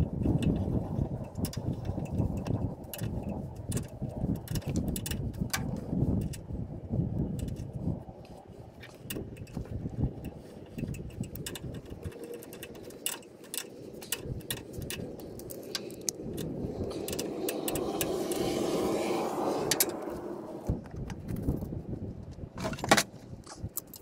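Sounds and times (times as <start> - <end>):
loud rushing noise: 16.6 - 20.8.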